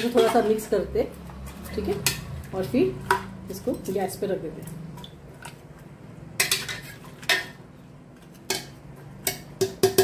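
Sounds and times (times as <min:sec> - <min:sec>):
spoon stirring in a metal pot: 0:00.0 - 0:10.0
spoon knocking against metal pot: 0:08.5 - 0:10.0.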